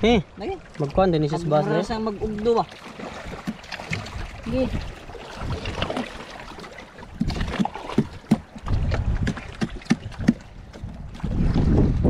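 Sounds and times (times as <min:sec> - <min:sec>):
wind rumble on microphone: 0:07.1 - 0:12.0.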